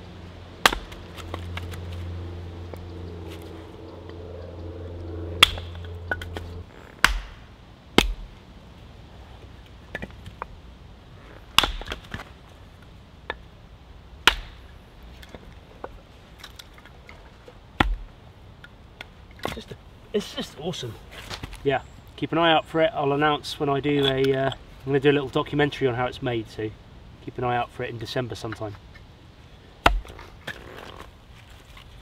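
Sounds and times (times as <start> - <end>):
low steady hum: 0.0 - 32.0
hatchet chopping wood: 0.6 - 1.8, 5.4 - 6.4, 7.0 - 7.4, 8.0 - 8.3, 11.5 - 12.2, 14.2 - 14.6, 17.8 - 18.1, 29.8 - 30.6.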